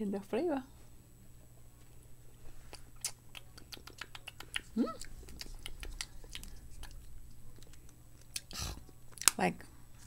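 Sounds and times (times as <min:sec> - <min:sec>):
lip-smacking: 0:02.6 - 0:09.4.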